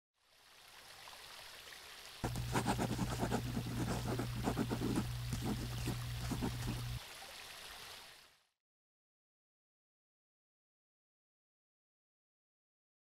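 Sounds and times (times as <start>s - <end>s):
steady low hum: 2.2s - 7.0s.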